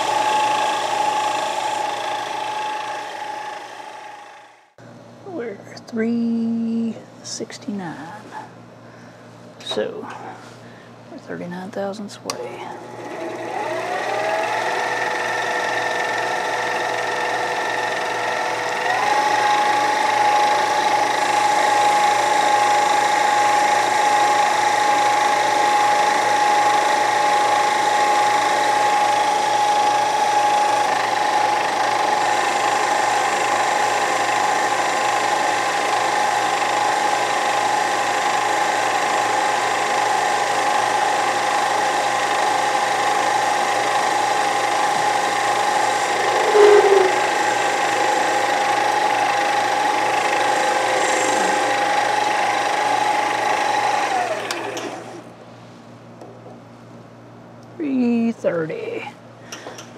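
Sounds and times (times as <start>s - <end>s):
metal lathe whining: 0.0s - 4.7s, 12.9s - 55.2s.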